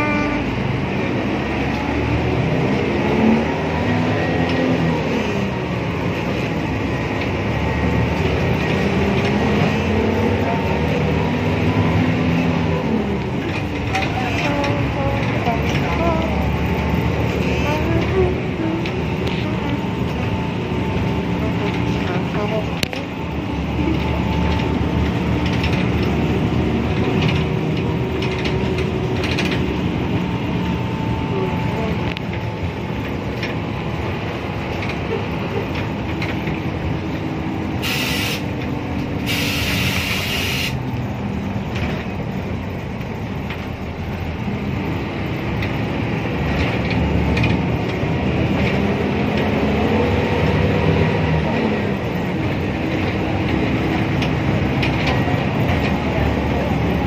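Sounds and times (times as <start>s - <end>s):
bus engine whine: 0.0s - 57.0s
short bursts of hiss: 37.8s - 38.5s, 39.3s - 40.8s.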